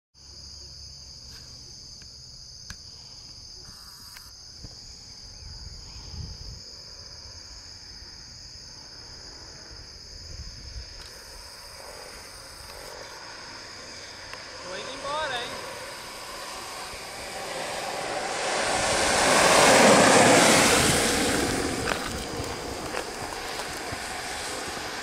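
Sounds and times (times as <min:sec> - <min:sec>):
insects chirring: 0:00.2 - 0:25.0
low rumble: 0:11.7 - 0:25.0.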